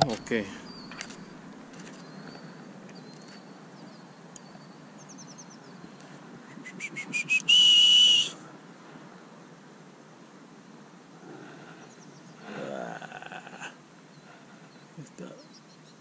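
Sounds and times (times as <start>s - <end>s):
faint high bird chirps: 0.0s - 8.3s
loud steady high whistle: 6.5s - 8.4s.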